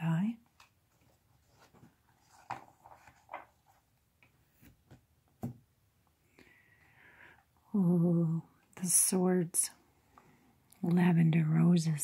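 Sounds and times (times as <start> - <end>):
cards rustling and tapping on table: 1.6 - 3.6.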